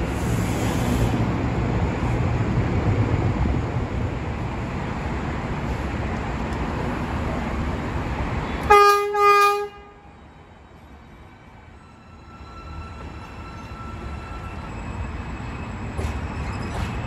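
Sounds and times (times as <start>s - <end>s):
train wheels rumbling on track: 0.0s - 17.0s
train horn blasts: 8.6s - 10.1s.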